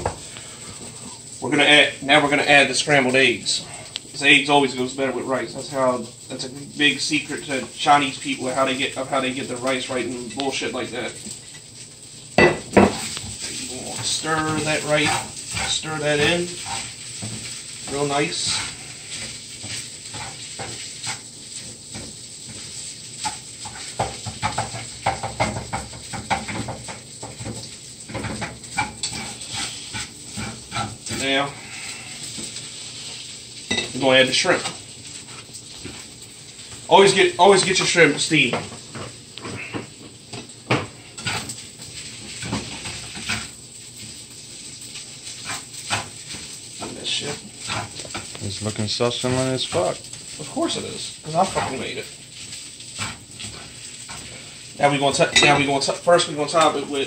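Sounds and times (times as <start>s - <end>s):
food sizzling in a pan: 0.0s - 57.0s
utensil scraping and clicking on pan: 12.6s - 31.3s, 38.6s - 48.4s, 51.4s - 55.9s.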